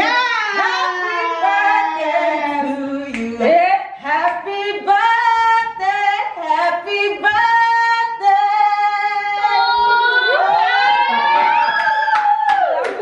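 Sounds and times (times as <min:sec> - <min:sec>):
woman singing slow tune: 0:01.1 - 0:09.7.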